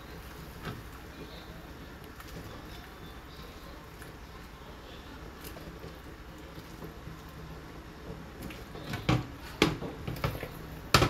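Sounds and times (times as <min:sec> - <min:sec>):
sharp knocks on a pot: 0:09.0 - 0:11.0.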